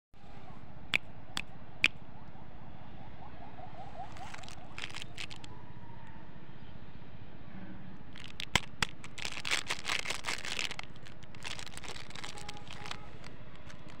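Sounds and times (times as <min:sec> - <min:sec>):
plastic wrappers crinkling: 0:04.1 - 0:05.5, 0:08.2 - 0:14.0
sharp clicks: 0:08.2 - 0:09.2.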